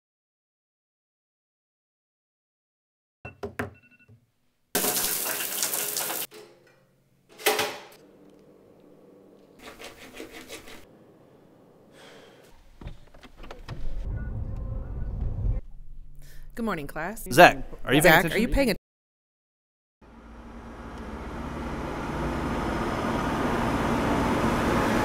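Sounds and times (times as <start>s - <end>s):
phone taps and tones: 3.3s - 4.2s
tap water running: 4.8s - 6.3s
car engine starting and running: 20.0s - 25.0s.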